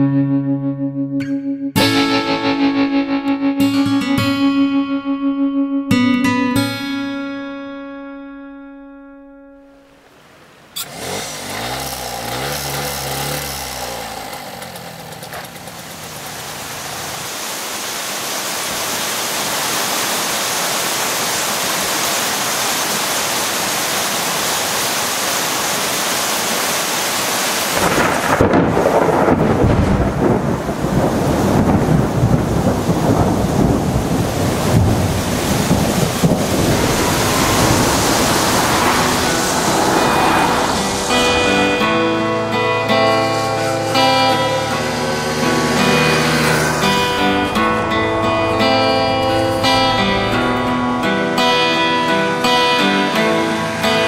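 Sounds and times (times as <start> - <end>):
heavy rain: 9.8 - 54.0
thunder rumble: 27.8 - 52.3.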